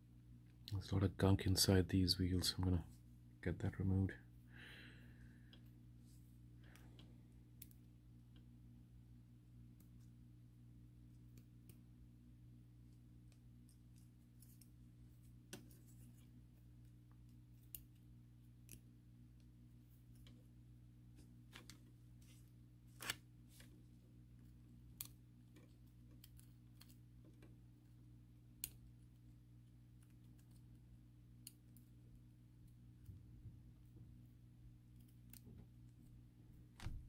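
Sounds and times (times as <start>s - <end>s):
faint steady hum: 0.0s - 37.0s.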